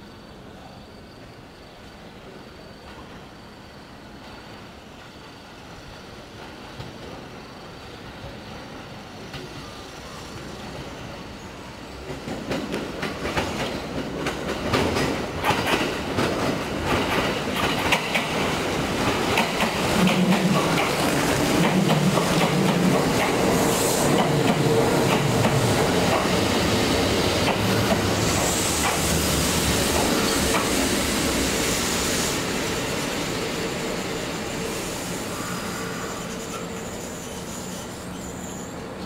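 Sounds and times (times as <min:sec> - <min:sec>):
train brakes whining: 0:06.5 - 0:39.0
train wheels clicking over rail joints: 0:12.0 - 0:31.6.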